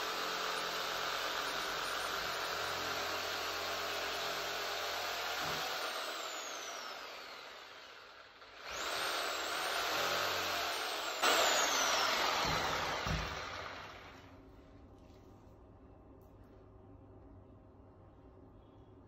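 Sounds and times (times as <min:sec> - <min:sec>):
reciprocating saw motor whine: 0:00.0 - 0:14.2.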